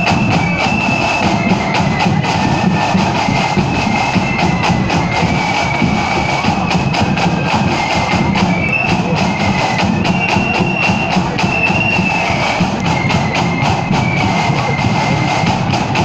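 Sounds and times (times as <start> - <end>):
flutes playing melody: 0.0 - 16.0
snare and bass drums: 0.0 - 16.0.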